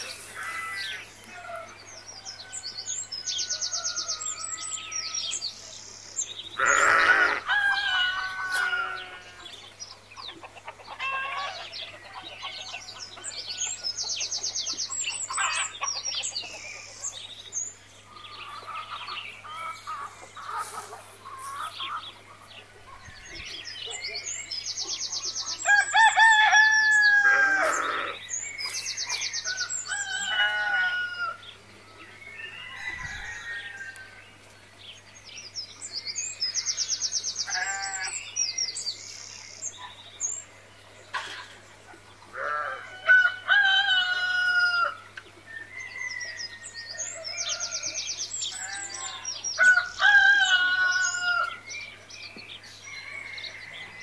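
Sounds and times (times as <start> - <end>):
rooster crowing: 0.3 - 5.3, 6.6 - 9.4, 25.6 - 28.2, 29.5 - 31.4, 32.4 - 34.2, 42.4 - 45.0, 52.9 - 54.0
hens clucking: 6.7 - 12.8.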